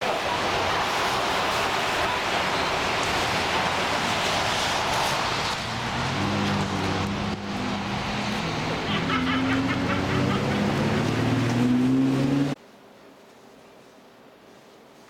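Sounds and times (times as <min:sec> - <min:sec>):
steady rushing noise: 0:00.0 - 0:12.6
vehicle engine low hum: 0:05.6 - 0:12.6.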